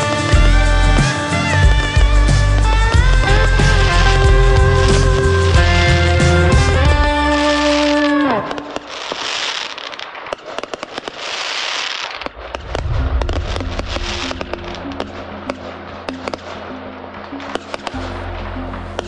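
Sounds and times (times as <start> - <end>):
background music: 0.0 - 9.6, 12.4 - 19.0
fireworks crackling and popping: 0.0 - 18.3
firework boom: 12.3 - 15.6.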